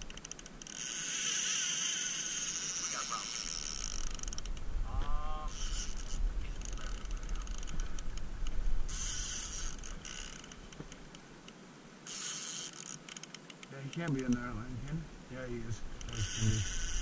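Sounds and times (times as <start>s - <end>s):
fishing reel ticking and whirring: 0.0s - 4.6s, 5.5s - 8.3s, 8.9s - 10.6s, 12.1s - 13.4s, 16.0s - 17.0s
clicks and hiss: 12.2s - 16.6s.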